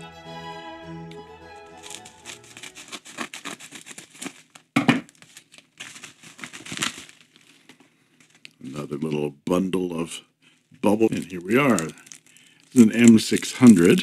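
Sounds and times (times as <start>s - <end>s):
bubble wrap crinkling: 1.6s - 9.2s, 10.5s - 14.0s
scissors snipping: 1.8s - 4.3s
thump: 4.8s - 5.1s.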